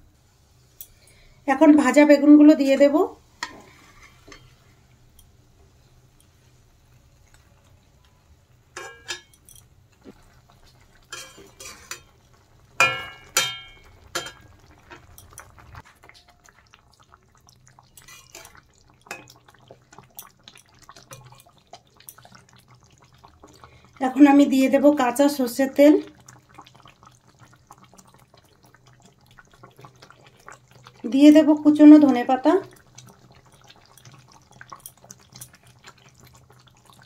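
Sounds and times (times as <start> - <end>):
metal spatula scraping a wok: 3.4 - 4.6, 11.1 - 12.1, 18.0 - 18.6
gravy simmering ticks: 14.0 - 24.0, 26.0 - 37.0.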